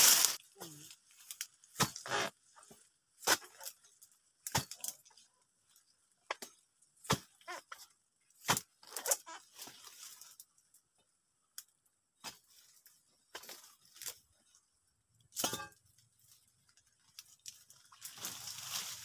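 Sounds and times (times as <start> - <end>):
dry palm fronds rustling: 0.0 - 4.0, 8.8 - 10.5, 16.1 - 19.0.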